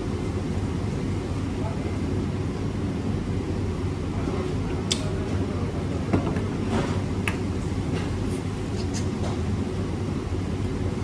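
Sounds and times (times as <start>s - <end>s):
low mechanical hum: 0.0s - 11.0s
eating clicks and smacks: 4.9s - 5.1s.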